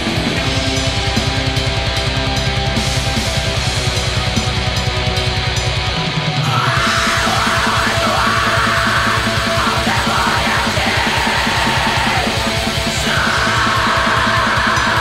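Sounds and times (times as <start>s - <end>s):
distorted guitar: 0.0s - 15.0s
rapid kick-drum strokes: 0.0s - 15.0s
harsh yelled vocals: 6.3s - 15.0s.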